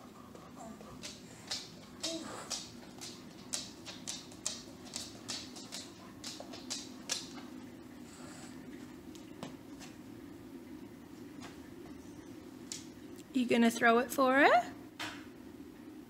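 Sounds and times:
large dog panting: 0.0 - 3.3
steady low hum: 0.0 - 16.0.

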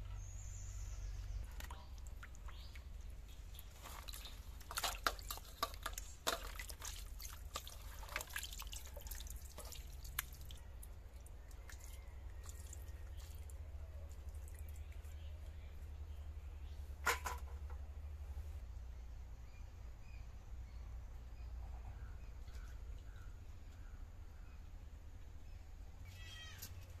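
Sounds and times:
water splashing in bowl: 3.5 - 10.6, 11.5 - 15.1.

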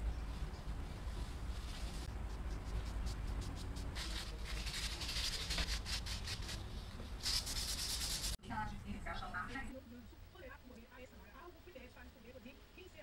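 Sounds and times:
steady low hum: 0.0 - 12.9
sandpaper scratching: 1.6 - 8.4.

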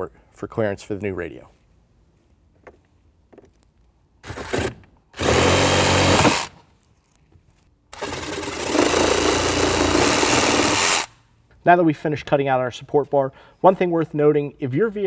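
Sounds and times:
reciprocating saw cutting plastic: 4.2 - 6.6, 7.9 - 11.2.

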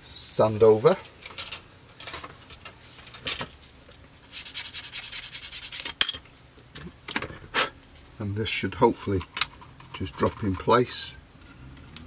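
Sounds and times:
sanding plastic part: 4.2 - 6.0.

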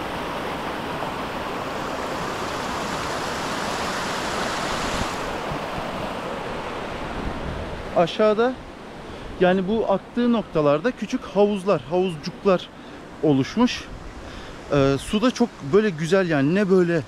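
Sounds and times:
waterfall rushing: 0.0 - 8.2.

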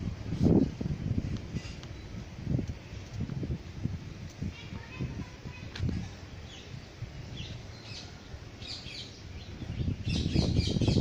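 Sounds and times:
birds chirping: 4.5 - 11.0.

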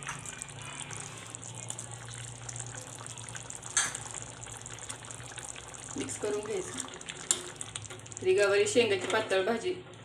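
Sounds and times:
curry bubbling in a pot: 0.0 - 9.0.

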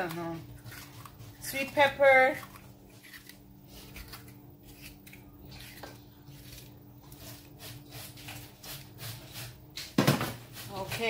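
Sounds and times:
low steady hum: 0.0 - 11.0
knife slicing a pepper: 2.5 - 11.0.

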